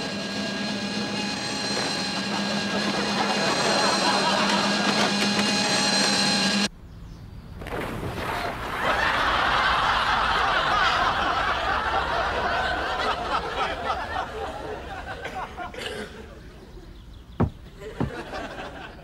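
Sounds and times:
studio audience laughing: 2.0s - 6.0s, 8.7s - 15.7s, 17.8s - 19.0s.

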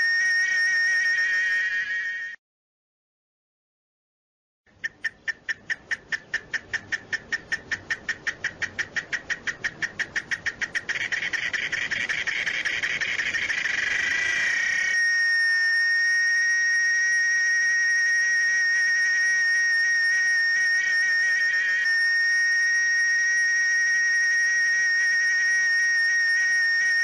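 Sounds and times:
high pure whistling tone: 0.0s - 2.4s, 10.7s - 27.0s
cicada clicking and buzzing: 5.7s - 14.9s.

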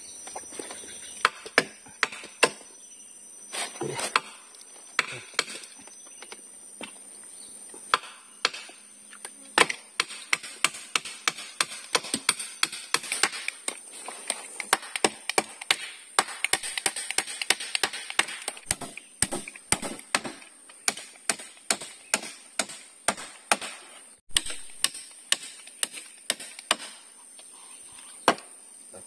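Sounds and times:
hammer tapping wooden poles: 9.6s - 27.0s.

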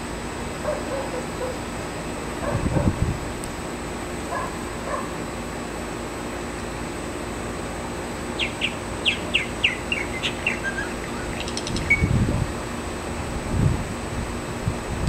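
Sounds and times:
bird chirps: 8.4s - 12.2s.

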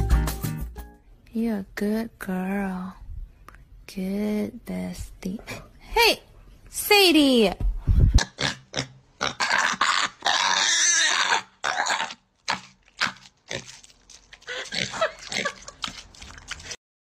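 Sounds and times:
pig chewing watermelon: 11.6s - 16.8s.

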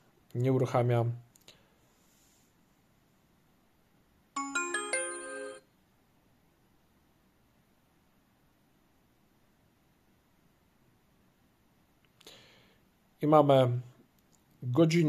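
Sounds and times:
rising startup chime: 4.4s - 5.6s.

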